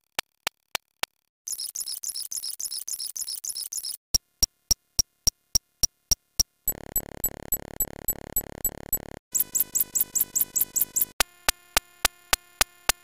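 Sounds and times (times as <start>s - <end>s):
sharp high clicks: 0.2s - 4.0s, 6.7s - 11.2s
high squeaky chirps: 1.5s - 4.0s
buzzy pulsing synthetic tone: 6.7s - 11.2s.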